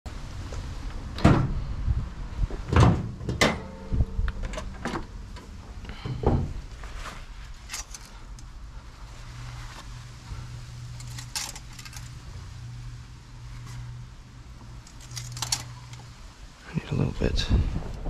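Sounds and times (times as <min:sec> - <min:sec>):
car panels clunking shut: 0:02.6 - 0:06.6
light clicks and rattles: 0:10.9 - 0:12.2, 0:14.8 - 0:16.2.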